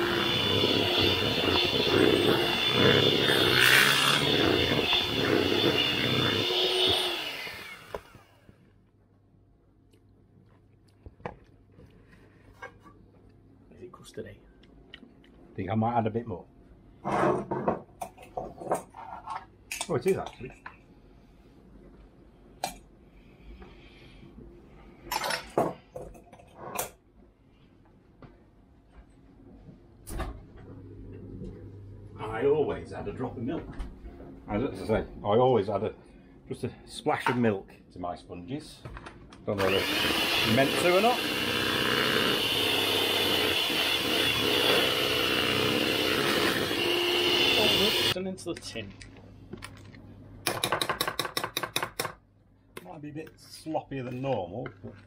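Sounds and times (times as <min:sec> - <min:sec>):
electric hand mixer running: 0:00.0 - 0:08.4, 0:39.6 - 0:48.2.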